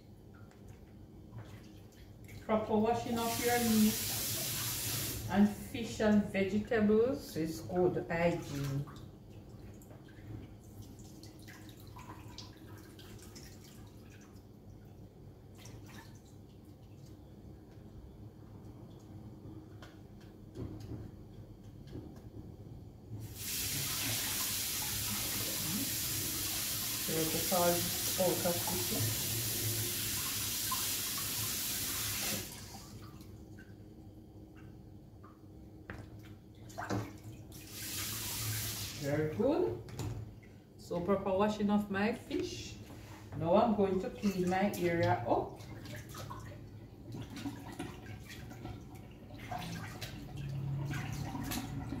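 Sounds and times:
water splashing in a sink: 0:00.3 - 0:05.4, 0:08.1 - 0:21.1, 0:23.2 - 0:33.8, 0:34.5 - 0:41.1, 0:43.8 - 0:52.0
water drips: 0:08.4 - 0:17.8.

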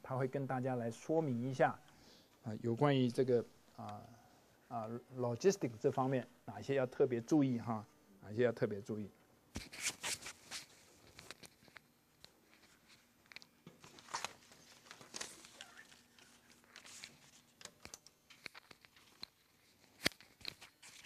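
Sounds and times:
papers rustling and clicking: 0:09.6 - 0:21.0.

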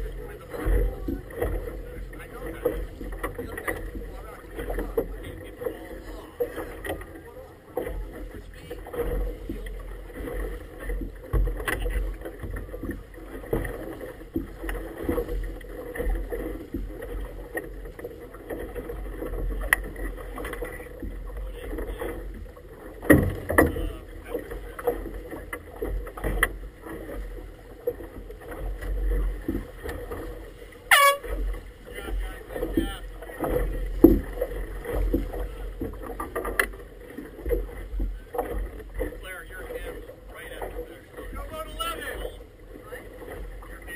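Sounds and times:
water lapping against boat hull: 0:00.0 - 0:43.9.

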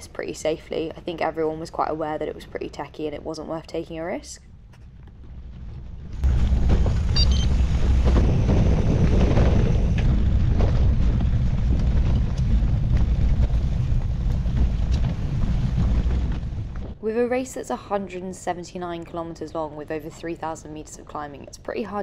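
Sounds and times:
wind buffeting microphone: 0:04.9 - 0:17.3
tyres rolling over gravel: 0:05.2 - 0:17.0.

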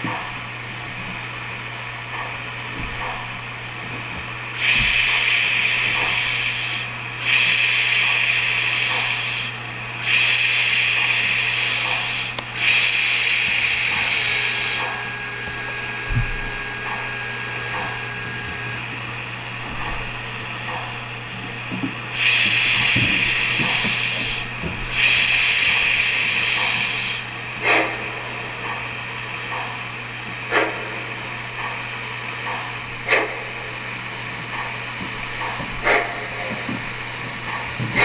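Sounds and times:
steady hum: 0:00.0 - 0:38.0
steam hiss bursts: 0:04.5 - 0:18.8, 0:22.1 - 0:28.1.

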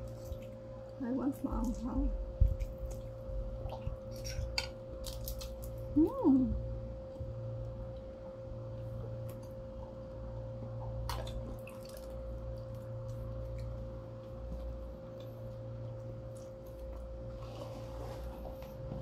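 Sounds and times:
low hum with thin tone: 0:00.0 - 0:19.0.

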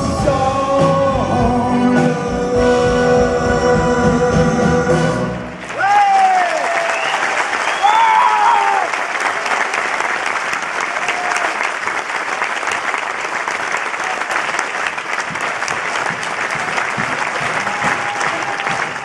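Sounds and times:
audience applauding: 0:05.5 - 0:19.0.

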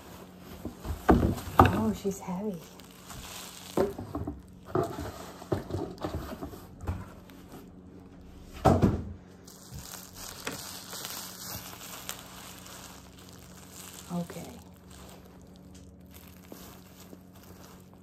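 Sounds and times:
cardboard knocking and scraping: 0:00.0 - 0:02.1, 0:03.0 - 0:07.7, 0:08.5 - 0:09.1
fabric rustling: 0:00.0 - 0:08.1, 0:09.4 - 0:18.0.

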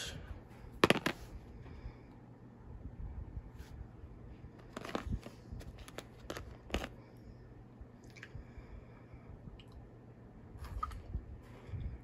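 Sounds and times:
chocolate bar wrapper crackling: 0:04.6 - 0:07.0.

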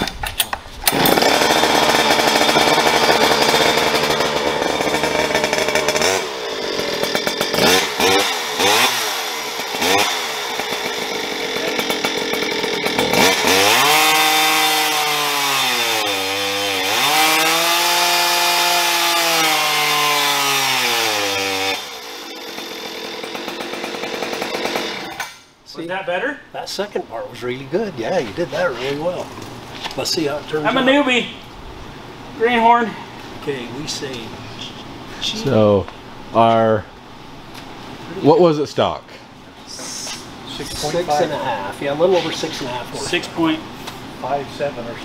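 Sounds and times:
chainsaw engine revving: 0:00.8 - 0:25.4.

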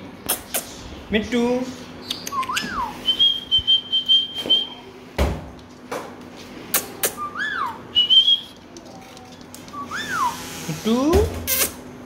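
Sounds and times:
parakeet whistling: 0:07.1 - 0:08.6, 0:09.7 - 0:10.6.

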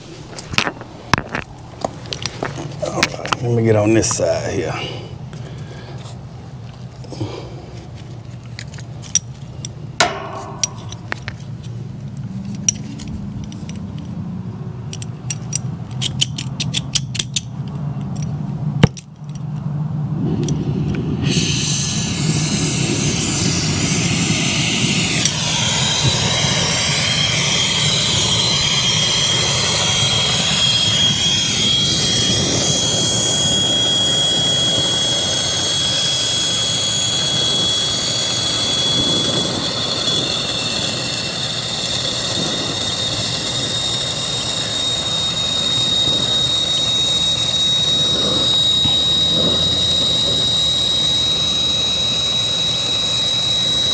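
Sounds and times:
torch flame hissing: 0:20.2 - 0:53.9
thin high whistle: 0:21.2 - 0:53.9.

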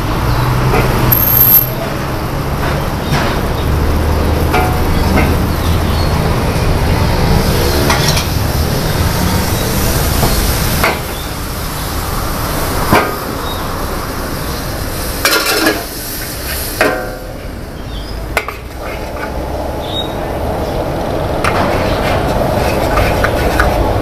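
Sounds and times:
metal spatula scraping wok: 0:18.7 - 0:19.4, 0:21.6 - 0:24.0.

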